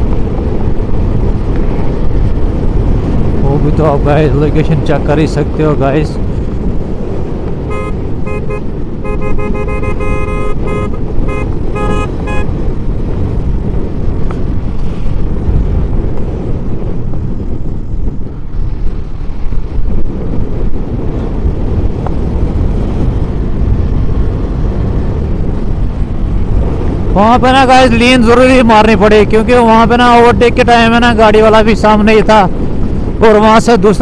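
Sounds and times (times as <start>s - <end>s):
wind and road noise: 0.0s - 34.0s
horn short beeps: 7.7s - 12.5s.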